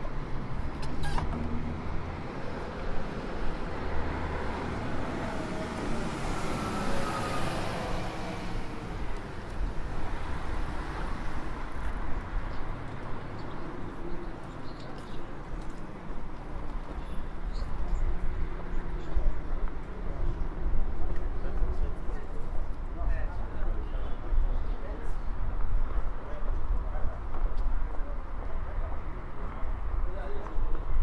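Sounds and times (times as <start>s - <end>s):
road traffic hum: 0.0s - 31.0s
vehicle passing: 1.4s - 9.1s.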